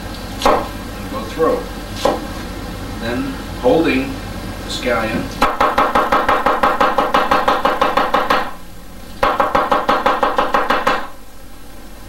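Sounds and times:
cleaver chopping on wooden board: 0:00.4 - 0:00.7, 0:05.4 - 0:08.5, 0:09.2 - 0:11.1.

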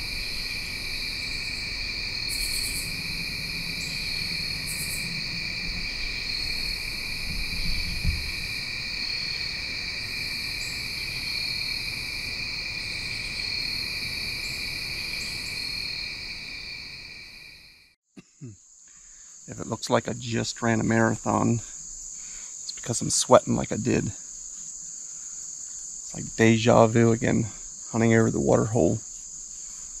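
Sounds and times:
short insect rasps: 0:00.0 - 0:20.0
crickets and insects trilling: 0:00.0 - 0:30.0
low thump: 0:07.3 - 0:08.4.

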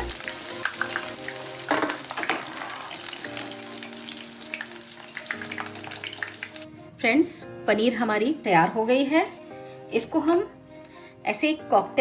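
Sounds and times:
deep-frying sizzle: 0:00.0 - 0:06.6.

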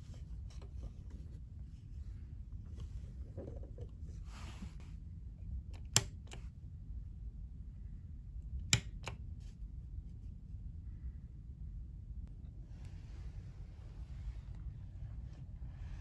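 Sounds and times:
light switch clicks: 0:05.7 - 0:06.4, 0:08.7 - 0:09.2
fainter click: 0:05.7 - 0:06.5, 0:08.6 - 0:09.2.

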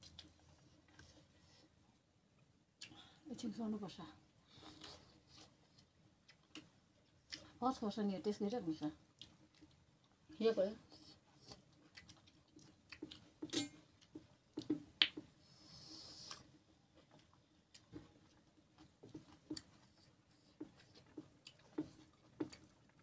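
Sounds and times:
chewing and mouth-smacking: 0:04.5 - 0:07.6, 0:09.1 - 0:15.3, 0:16.2 - 0:23.0.

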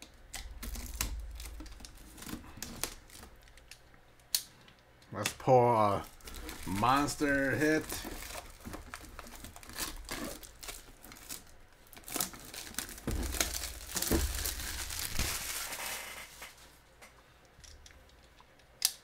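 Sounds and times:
plastic wrap crinkling and tearing: 0:00.4 - 0:03.8, 0:05.9 - 0:16.6.

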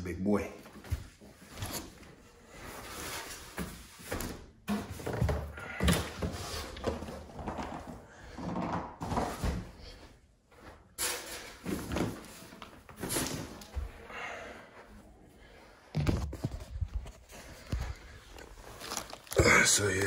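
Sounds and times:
rustling cardboard and plastic: 0:15.9 - 0:20.0.

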